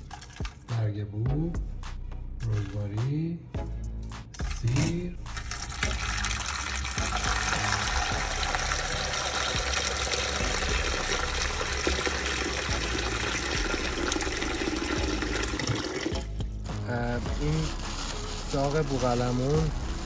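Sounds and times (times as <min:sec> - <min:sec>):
tap water running into steel bowl: 0:05.4 - 0:16.4.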